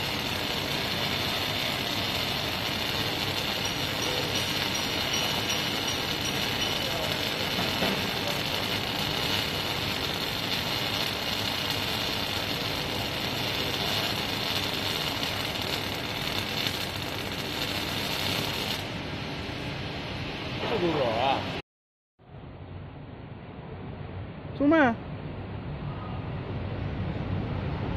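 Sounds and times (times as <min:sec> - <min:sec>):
welding arc hissing and crackling: 0:00.0 - 0:19.0.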